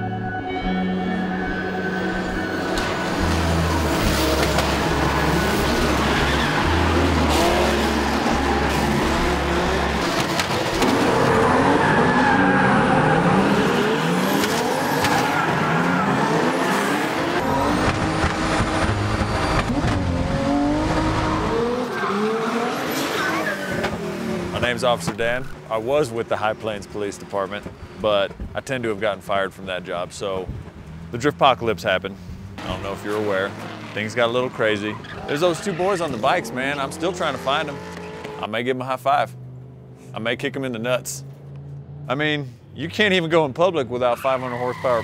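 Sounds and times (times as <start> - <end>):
pulsing low bass line: 0.0 - 10.4
car engines revving: 1.0 - 45.0
tyres squealing: 3.5 - 17.7, 33.5 - 38.4, 44.0 - 45.0.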